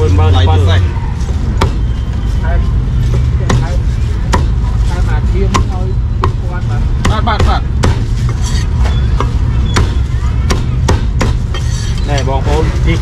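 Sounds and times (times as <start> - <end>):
voices: 0.0 - 13.0
cleaver chopping on a board: 4.3 - 4.6, 5.5 - 6.4, 7.0 - 8.4, 9.2 - 11.4.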